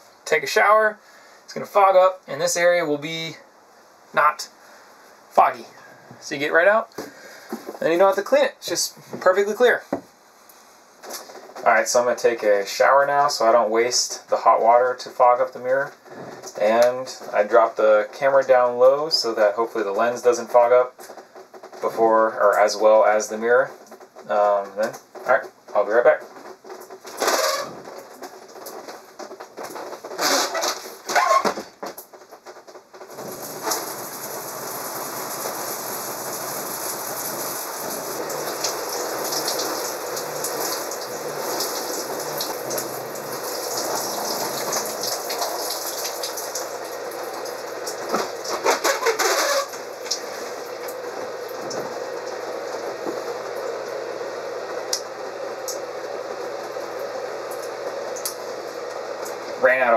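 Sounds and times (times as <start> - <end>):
short squeaks: 26.6 - 28.8, 29.8 - 31.7, 48.5 - 49.8
shower spray running: 27.2 - 28.8, 33.0 - 59.6.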